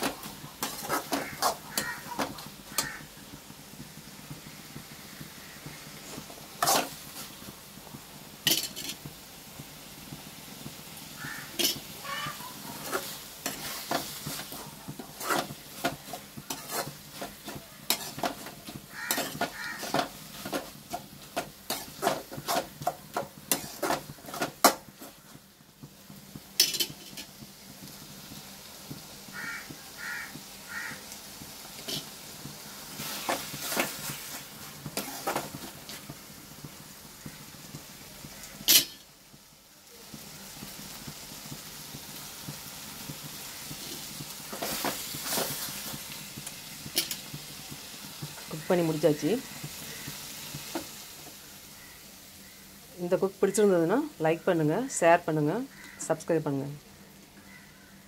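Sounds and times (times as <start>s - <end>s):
metal spoon scraping a pan: 0.0s - 3.1s, 6.0s - 7.5s, 8.4s - 9.1s, 11.2s - 25.3s, 26.6s - 27.4s, 31.8s - 32.2s, 33.0s - 36.1s, 38.5s - 39.0s, 43.8s - 46.1s, 46.9s - 47.3s
faint sizzle of frying: 0.0s - 58.0s.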